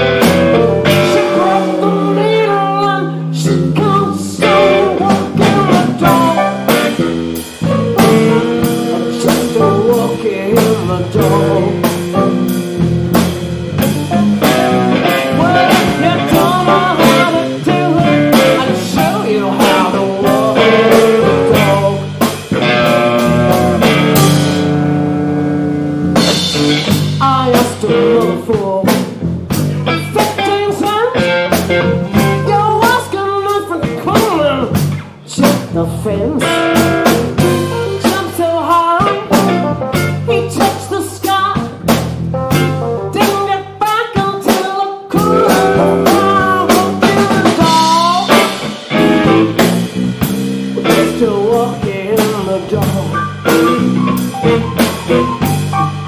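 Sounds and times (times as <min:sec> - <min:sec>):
electric keyboard: 0:00.0 - 0:27.2, 0:36.5 - 0:43.9, 0:45.1 - 0:51.8, 0:52.7 - 0:56.0
drum kit beat: 0:00.0 - 0:56.0
electric guitars: 0:00.0 - 0:56.0.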